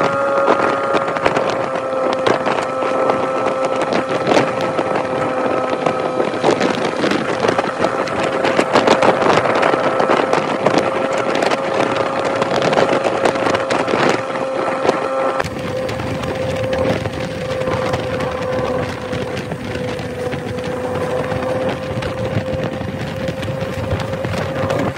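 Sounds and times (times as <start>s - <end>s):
low rumble: 0.0s - 24.9s
motorcycle engine running: 0.0s - 24.9s
wind buffeting microphone: 0.0s - 24.9s.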